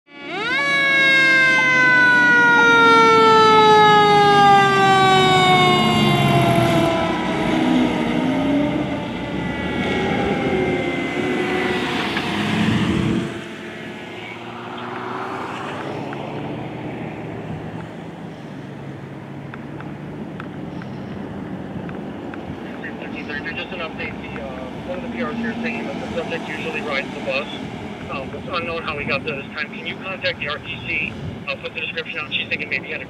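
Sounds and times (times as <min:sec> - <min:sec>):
mechanical siren wailing: 0:00.1 - 0:14.8
fire truck engine: 0:00.1 - 0:33.0.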